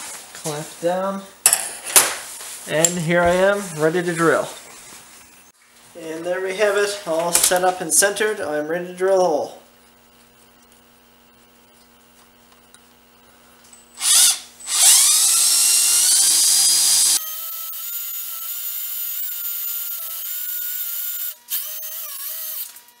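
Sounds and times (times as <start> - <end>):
electric drill drilling into metal: 13.7 - 23.0.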